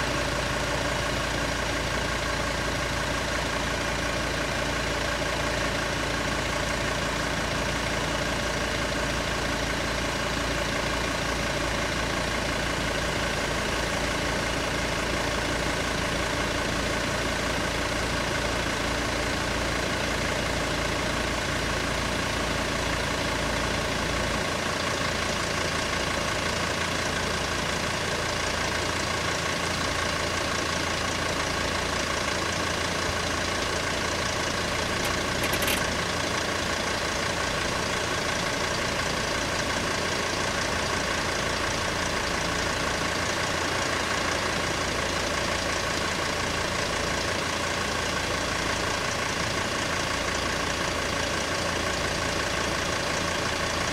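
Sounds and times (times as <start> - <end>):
car engine idling: 0.0 - 53.9
sharp click: 35.0 - 35.9.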